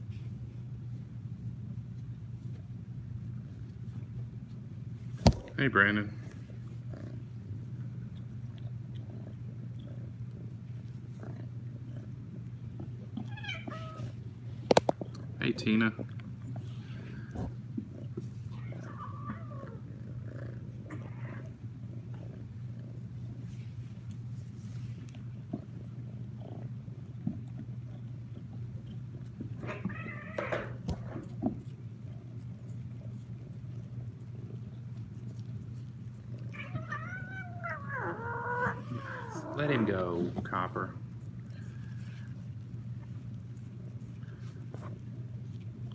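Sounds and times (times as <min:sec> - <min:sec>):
kitten purring: 0:02.0 - 0:45.9
cat meowing: 0:13.2 - 0:14.2, 0:29.6 - 0:30.8, 0:36.5 - 0:39.6.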